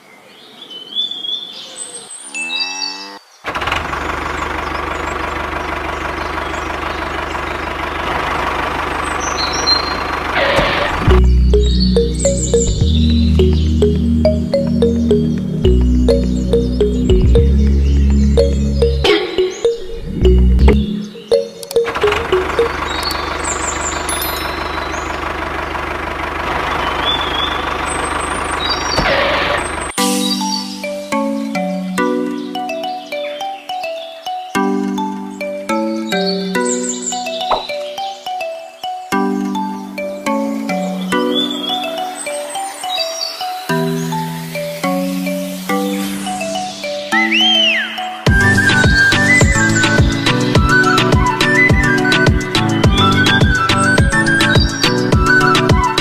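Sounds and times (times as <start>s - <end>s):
tractor engine idling: 3.5s - 30.0s, 48.3s - 56.0s.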